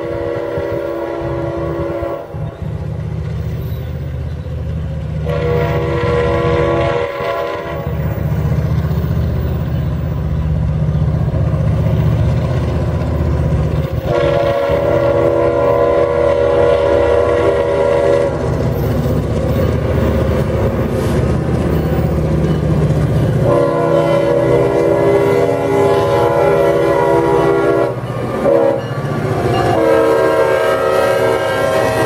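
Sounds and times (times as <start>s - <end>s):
train air horn blasts: 0.0s - 2.6s, 5.2s - 8.3s, 14.0s - 19.0s, 23.4s - 32.0s
locomotive engine rumbling: 0.0s - 32.0s.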